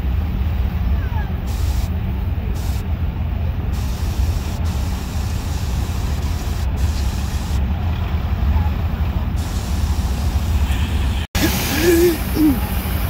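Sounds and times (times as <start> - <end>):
steady rushing hiss: 1.4 - 7.8, 9.2 - 13.0.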